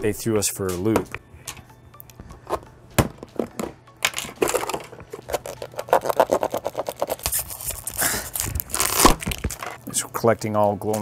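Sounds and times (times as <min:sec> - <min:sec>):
plastic pouch crinkling: 0:05.2 - 0:09.8.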